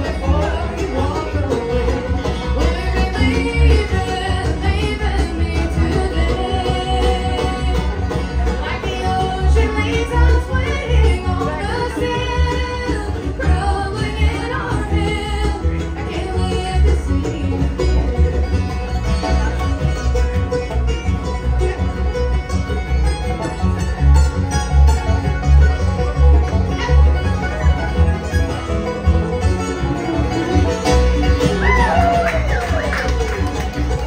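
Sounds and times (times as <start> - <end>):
person singing: 0.0 - 8.0
acoustic guitars: 0.0 - 34.0
banjo: 0.0 - 34.0
fiddle: 0.0 - 34.0
mandolin: 0.0 - 34.0
upright bass: 0.0 - 34.0.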